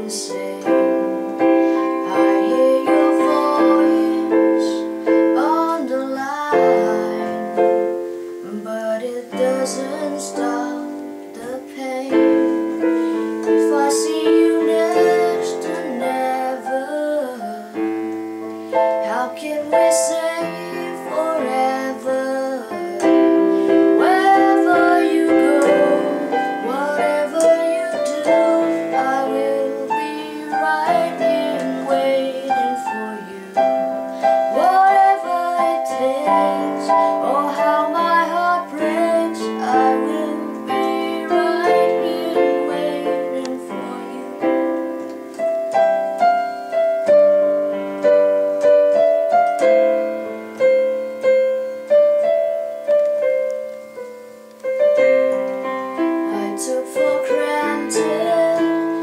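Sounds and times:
woman singing: 0:00.0 - 0:45.3, 0:56.0 - 0:59.0
digital piano chords: 0:00.0 - 0:59.0.

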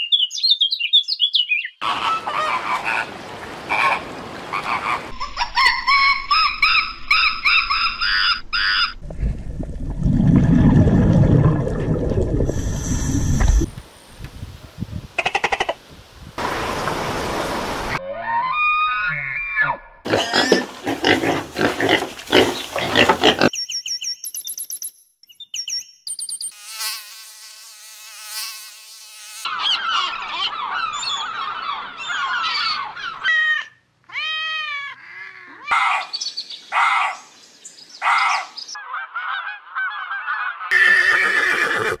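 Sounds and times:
gulls calling: 0:01.8 - 0:09.0, 0:29.5 - 0:37.2
pigs grunting and squealing: 0:18.0 - 0:23.5.

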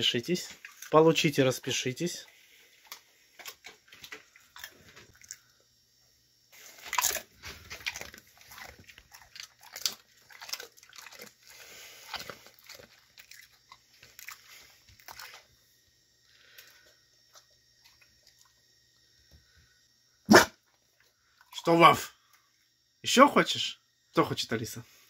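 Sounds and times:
dog crunching a treat: 0:02.8 - 0:05.4, 0:06.6 - 0:15.5.

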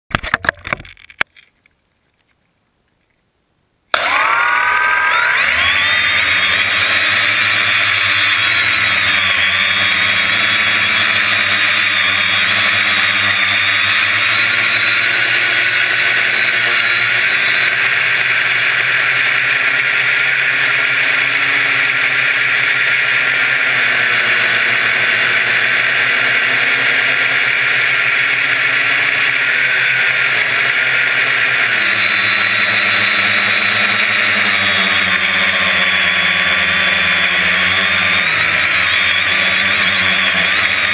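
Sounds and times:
drone propellers buzzing: 0:03.9 - 0:40.9.

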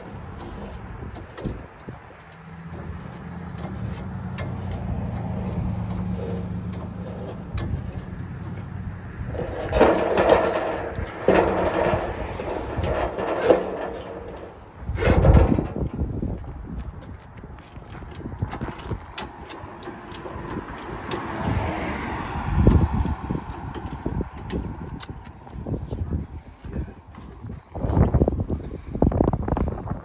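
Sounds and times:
wire cart clattering against metal: 0:00.0 - 0:16.4.

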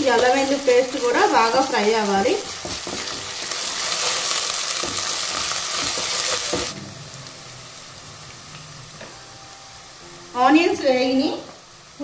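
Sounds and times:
onions sizzling in hot oil: 0:00.0 - 0:12.0
wooden spatula scraping: 0:00.1 - 0:06.8.

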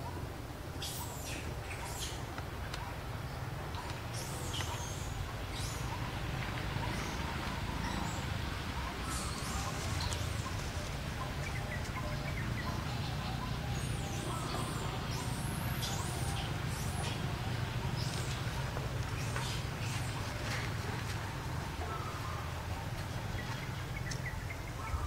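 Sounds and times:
steady low rumble: 0:05.0 - 0:25.0.

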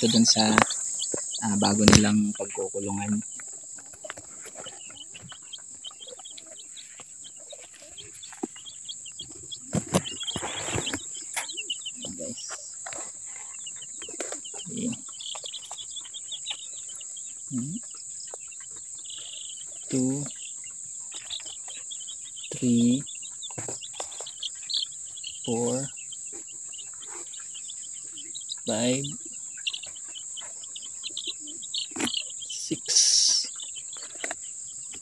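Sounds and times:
high insect trill: 0:00.0 - 0:06.4
chicks peeping: 0:00.0 - 0:35.0.

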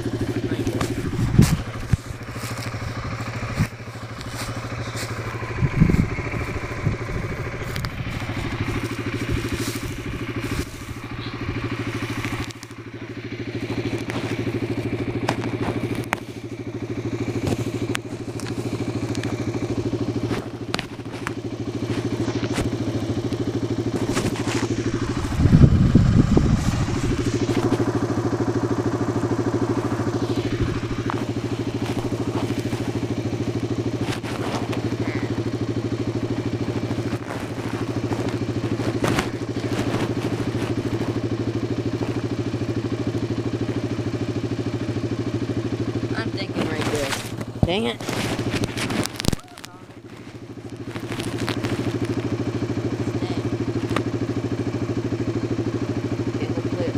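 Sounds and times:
atv engine idling: 0:00.0 - 0:56.9
low burst: 0:24.4 - 0:32.3.

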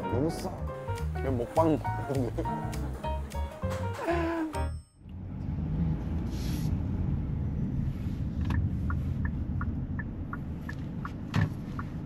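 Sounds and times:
car cabin road and engine rumble: 0:05.0 - 0:12.0
turn signal ticking: 0:08.4 - 0:12.0.

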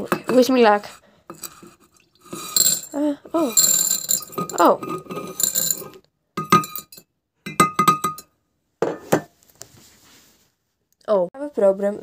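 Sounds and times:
pebbles clattering into glass jar: 0:01.3 - 0:08.2.

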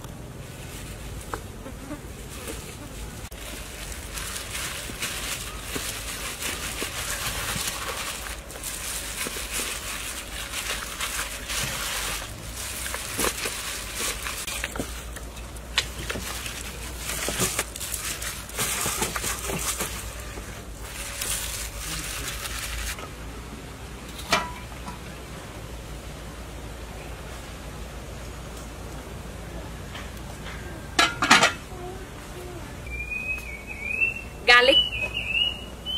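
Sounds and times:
wet squelching of hands massaging chicken: 0:03.3 - 0:23.0.

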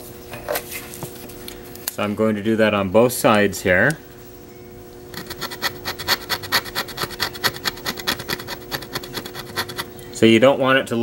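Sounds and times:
screwdriver scraping circuit board: 0:05.1 - 0:09.9.

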